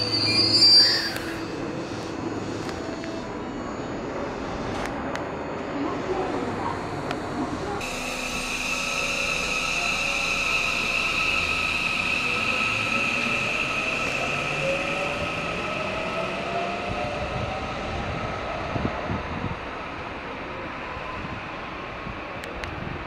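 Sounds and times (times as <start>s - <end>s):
traction motor whine: 7.8s - 15.6s.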